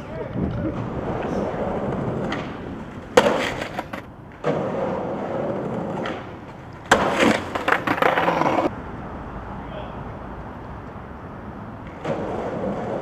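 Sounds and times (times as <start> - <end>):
skateboard wheels rolling on pavement: 0.0 - 13.0
skateboard hitting the ground: 0.4 - 8.7, 11.8 - 13.0.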